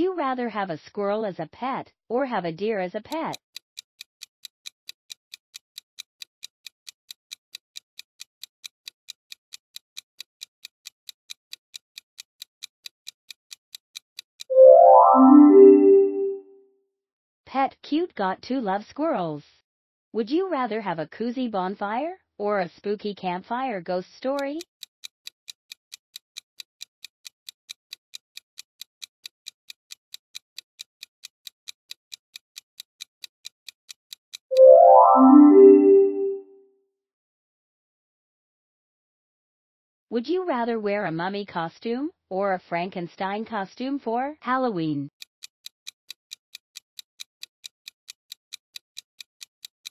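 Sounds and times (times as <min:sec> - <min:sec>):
clock ticking quickly: 0:03.1 - 0:14.5
loud musical tone: 0:14.5 - 0:16.4, 0:34.6 - 0:36.4.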